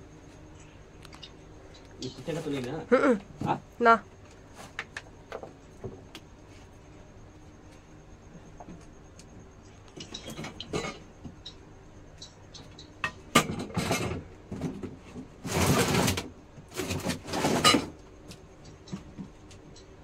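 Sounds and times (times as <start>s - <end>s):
objects scraping and rustling: 4.2s - 5.5s, 13.4s - 19.1s.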